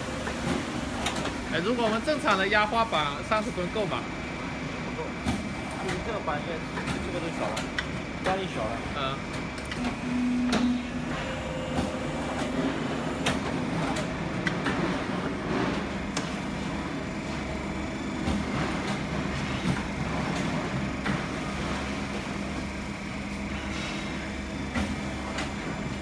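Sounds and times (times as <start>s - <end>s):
hydraulic pump motor hum: 9.4s - 26.0s.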